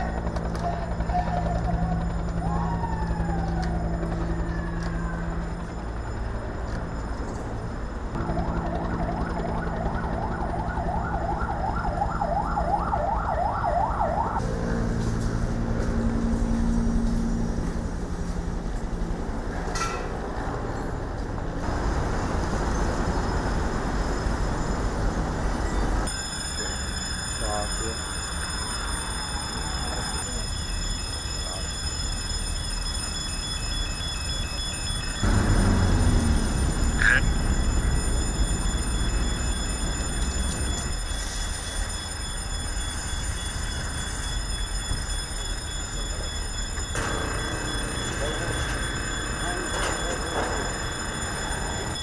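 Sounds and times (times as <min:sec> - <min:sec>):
vehicle engines rumbling: 0:00.0 - 0:26.1, 0:35.2 - 0:41.8
emergency vehicle sirens: 0:00.0 - 0:52.0.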